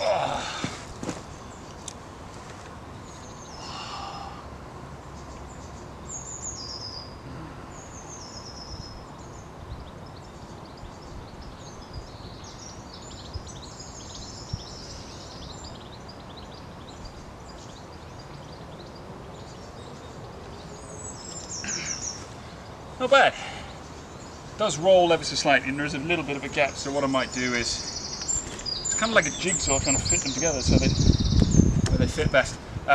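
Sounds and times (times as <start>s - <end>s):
birds chirping and trilling: 0.0s - 32.9s
outdoor background noise: 0.0s - 32.9s.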